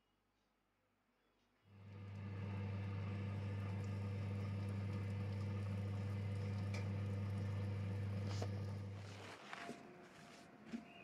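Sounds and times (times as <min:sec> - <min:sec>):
electric oven humming: 0:01.7 - 0:09.3.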